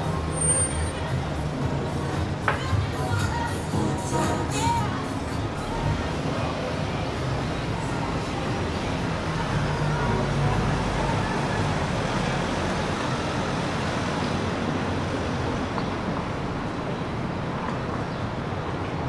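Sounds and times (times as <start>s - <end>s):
road vehicles passing: 0.0s - 19.0s.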